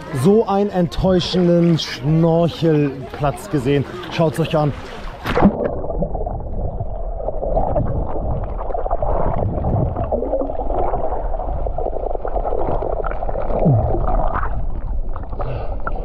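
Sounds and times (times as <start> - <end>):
muffled underwater water rush: 3.8 - 16.0
bubbling: 5.2 - 16.0.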